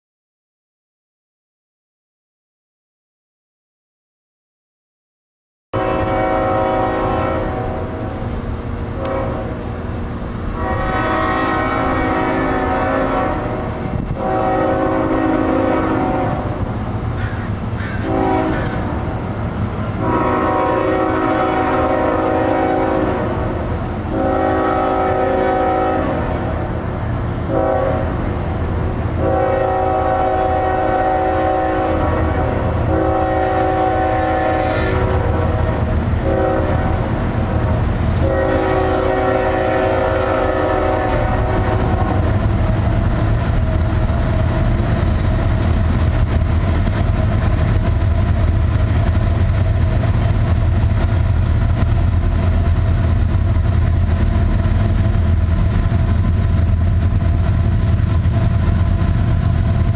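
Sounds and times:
locomotive horn blasts: 5.8 - 9.8, 10.5 - 16.7, 17.8 - 19.2, 19.9 - 26.8, 27.4 - 28.6, 29.2 - 42.5
diesel train rumbling: 5.8 - 59.9.

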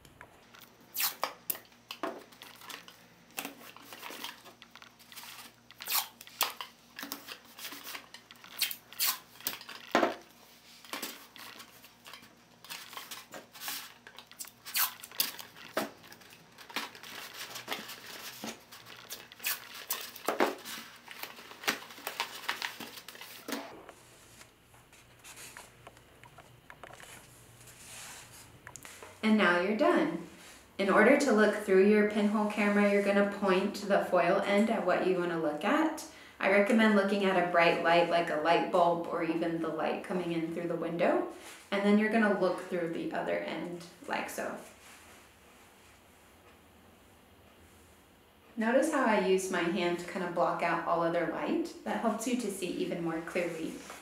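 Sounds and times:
tape ripping: 0.6 - 23.8
paper tube rustling: 2.2 - 25.7.

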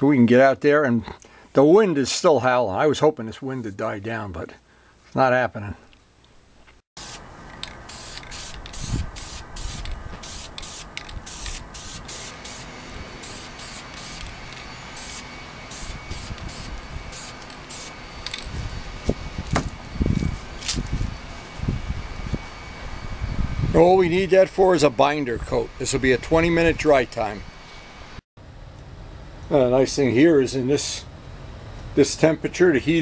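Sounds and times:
aerosol can spraying: 7.0 - 18.6
wind buffeting microphone: 8.6 - 10.3, 18.4 - 24.7.

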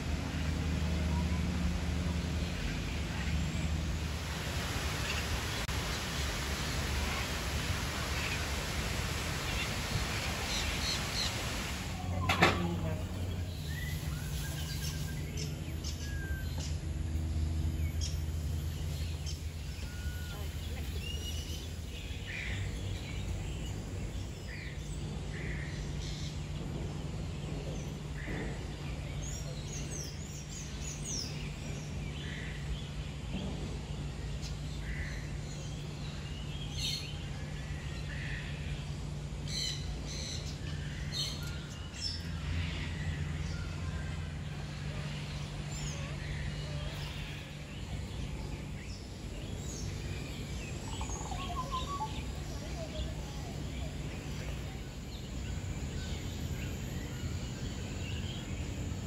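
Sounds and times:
steady low hum: 0.0 - 59.0
birds chirping and squawking: 45.3 - 59.0.

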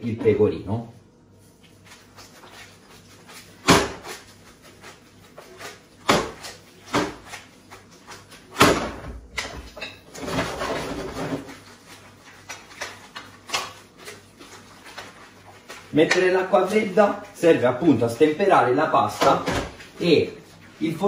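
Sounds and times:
wet pasta stirring in pan: 10.2 - 17.5.

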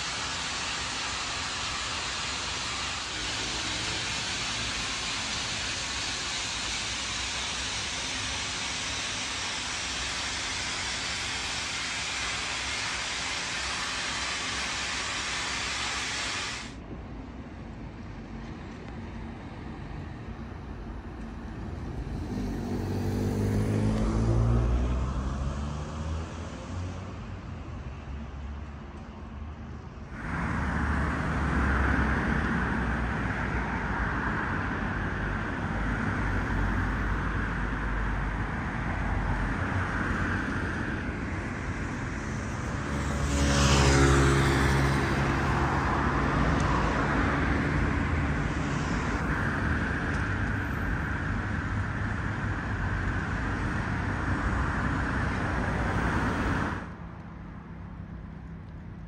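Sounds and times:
street traffic noise: 0.0 - 59.0
car passing close by: 21.8 - 27.3, 30.2 - 56.9.

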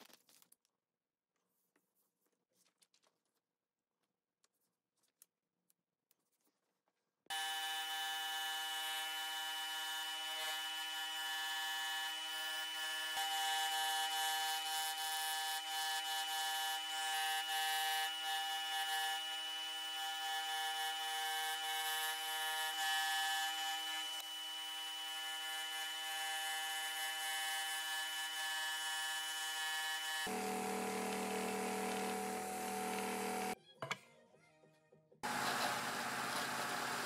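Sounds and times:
scroll saw cutting wood: 7.3 - 33.6, 35.2 - 37.0.

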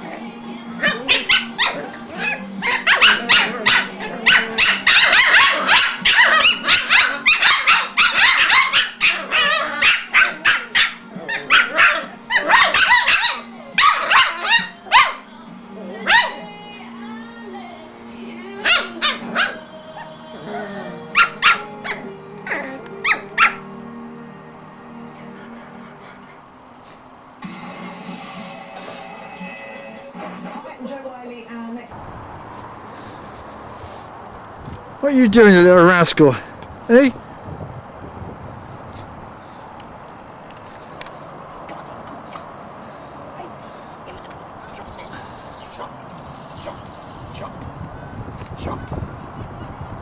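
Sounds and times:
puppies yipping and barking: 0.0 - 16.7, 18.5 - 23.9, 41.9 - 47.6
background music: 0.0 - 32.0.

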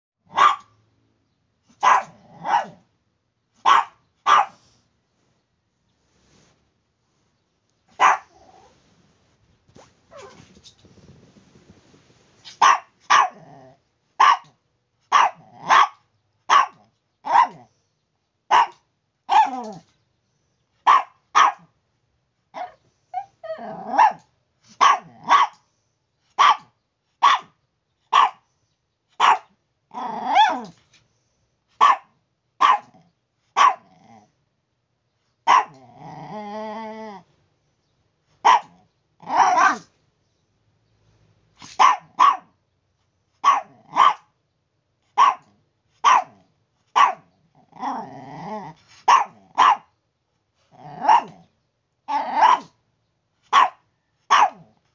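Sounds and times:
small dog barking: 0.2 - 0.8, 1.7 - 2.9, 3.6 - 4.6, 7.9 - 8.7, 10.1 - 10.5, 12.4 - 17.7, 18.5 - 19.8, 20.8 - 21.7, 22.5 - 25.6, 26.3 - 28.4, 29.2 - 30.8, 31.8 - 34.3, 35.4 - 36.1, 38.4 - 39.9, 41.6 - 42.6, 43.4 - 44.4, 45.1 - 49.9, 50.8 - 51.5, 52.1 - 52.8, 53.5 - 54.8.

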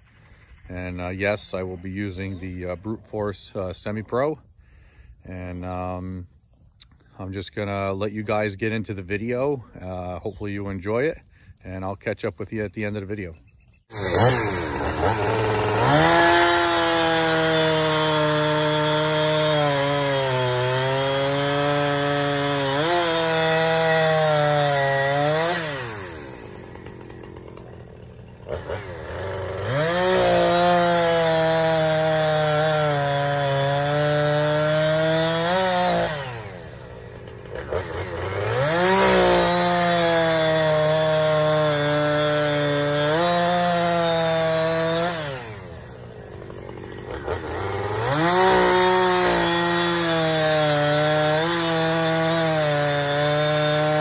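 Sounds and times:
chainsaw cutting log: 13.9 - 54.0
chainsaw idling: 13.9 - 54.0.

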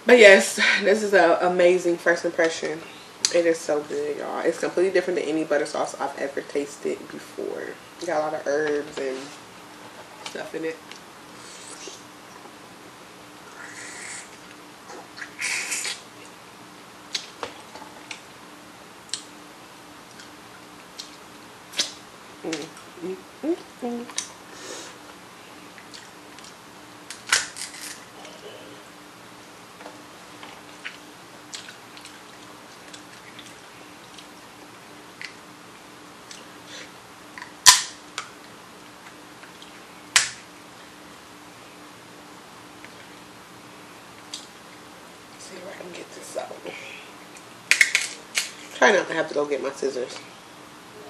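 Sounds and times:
faint low hum: 0.0 - 51.0
crab shell cracking: 27.1 - 28.0
wet chewing clicks: 30.4 - 34.4.

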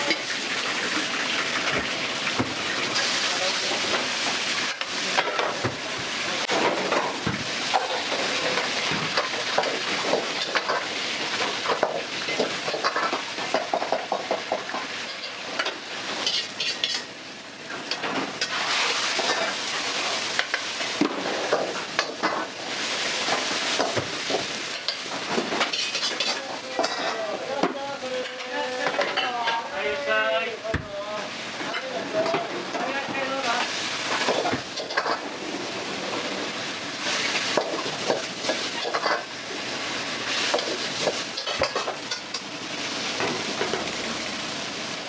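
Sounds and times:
food sizzling in wok: 0.0 - 45.0
metal ladle clattering on pan: 23.7 - 27.3, 40.5 - 42.5.

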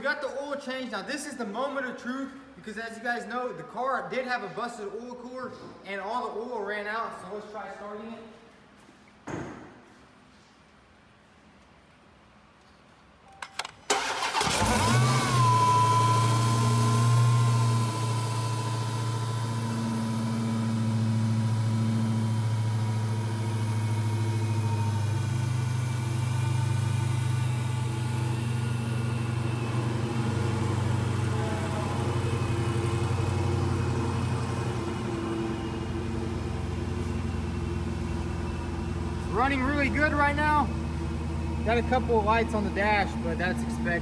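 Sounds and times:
car engine idling: 13.9 - 44.0.

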